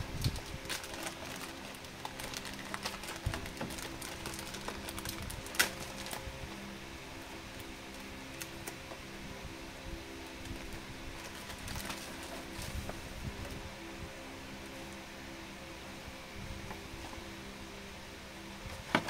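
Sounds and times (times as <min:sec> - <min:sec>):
plastic wrapping crinkling: 0:00.0 - 0:06.6, 0:10.4 - 0:13.6
faint background music: 0:00.0 - 0:19.0.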